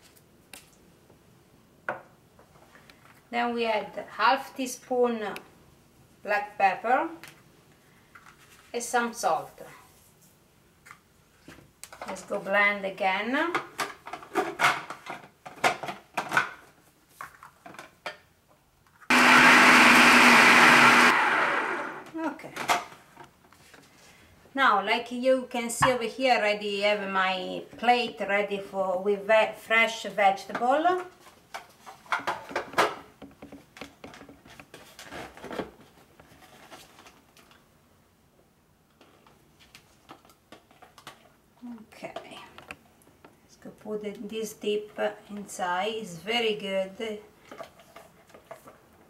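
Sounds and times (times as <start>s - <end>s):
food processor motor blending: 19.1s - 22.2s
objects handled on a table: 47.4s - 49.0s.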